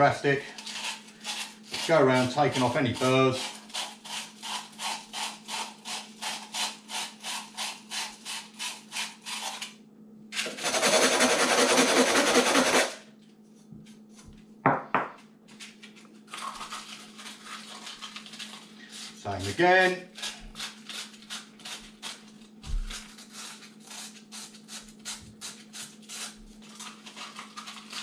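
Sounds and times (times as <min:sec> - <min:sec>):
sandpaper rubbing metal: 0:10.4 - 0:13.0.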